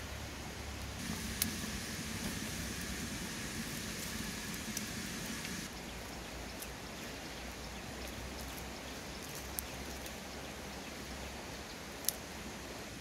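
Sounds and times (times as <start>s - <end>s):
wood fire crackling: 0.8s - 5.7s
fire snapping: 1.0s - 5.7s.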